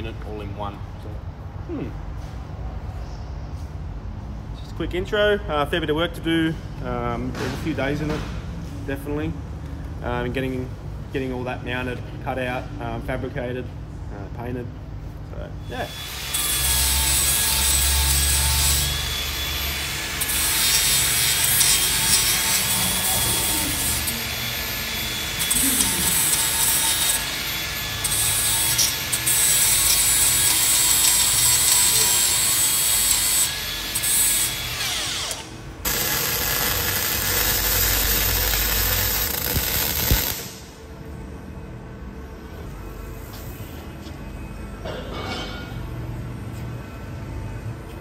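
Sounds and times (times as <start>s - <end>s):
angle grinder grinding steel: 15.9s - 40.6s.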